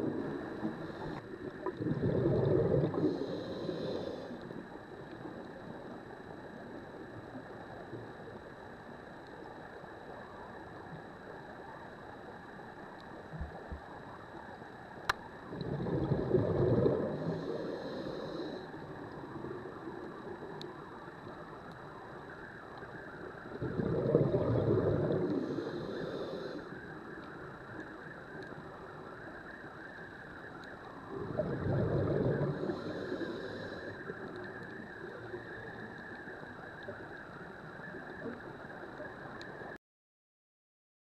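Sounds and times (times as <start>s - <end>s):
steady underwater hiss: 0.0s - 39.8s
bubbles gurgling underwater: 1.5s - 3.2s, 15.5s - 17.5s, 23.5s - 25.4s, 31.1s - 32.9s.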